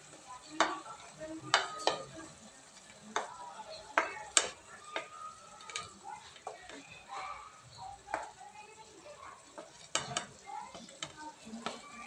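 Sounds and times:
faint sizzling from pot: 0:00.0 - 0:12.0
wooden spoon knocking on dish: 0:01.5 - 0:02.1, 0:03.2 - 0:06.9, 0:08.0 - 0:08.4, 0:09.5 - 0:12.0.

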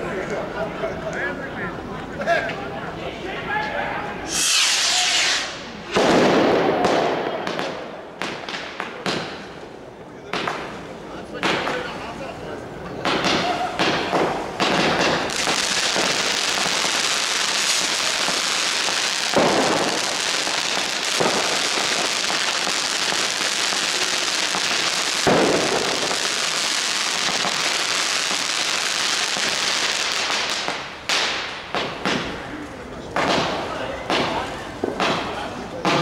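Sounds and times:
firework hissing and crackling: 0:04.2 - 0:09.8, 0:13.1 - 0:36.0
sharp bangs: 0:04.3 - 0:09.5, 0:13.0 - 0:26.4.

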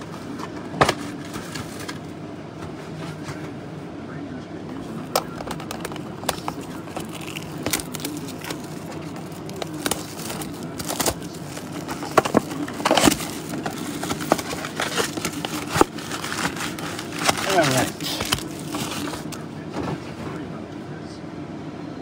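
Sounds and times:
low background hum: 0:00.0 - 0:22.0
plastic wrap crinkling: 0:05.0 - 0:19.4.

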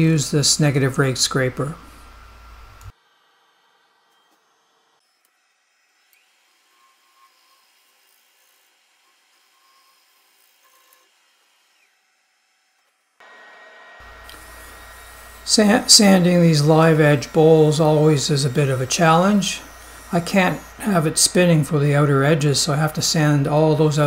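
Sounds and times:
workshop noise with low hum: 0:14.0 - 0:24.0.

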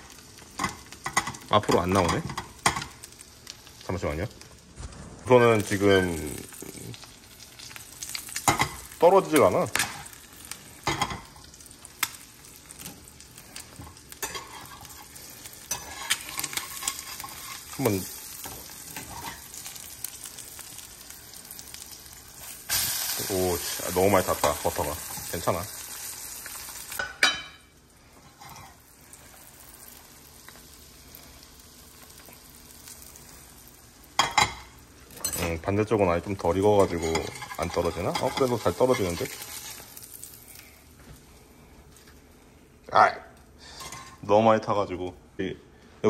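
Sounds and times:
egg sizzling in frying pan: 0:00.0 - 0:42.5
metal spatula scraping pan: 0:14.2 - 0:17.6.

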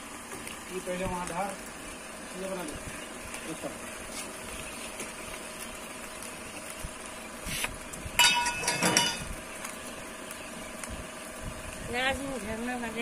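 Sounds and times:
metal skewer clanking on grill: 0:08.2 - 0:09.3.

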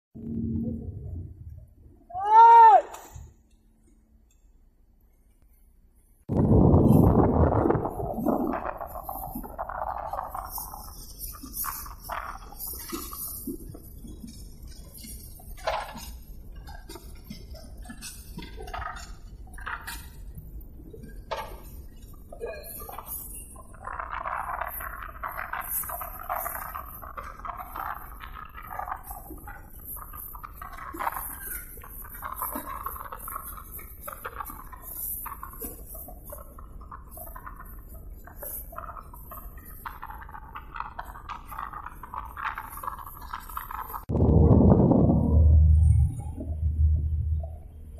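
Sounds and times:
boat engine rumble: 0:44.1 - 0:47.9.

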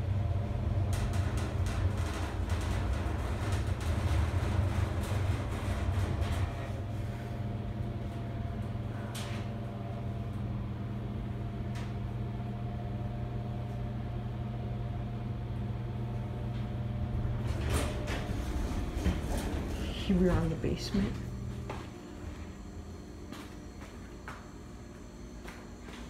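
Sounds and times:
elevator humming: 0:00.0 - 0:26.0
sliding door clattering open: 0:17.2 - 0:19.8.

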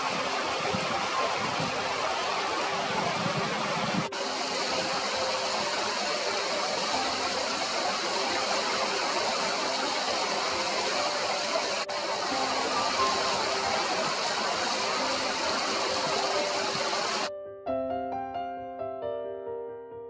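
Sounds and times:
river water flowing: 0:00.0 - 0:17.3.

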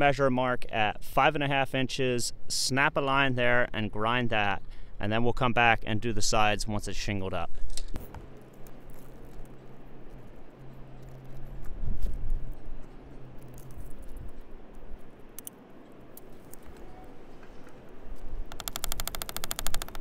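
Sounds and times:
low steady hum: 0:00.0 - 0:20.0
wind rumble: 0:08.0 - 0:18.9.

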